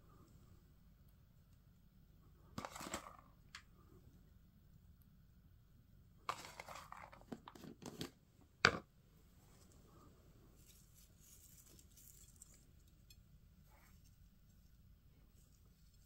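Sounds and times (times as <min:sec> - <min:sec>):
green onions rustling: 0:10.5 - 0:13.1.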